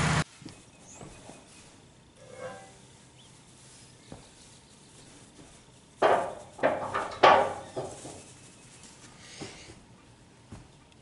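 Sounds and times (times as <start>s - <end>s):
wooden pieces knocking together: 6.0s - 8.2s.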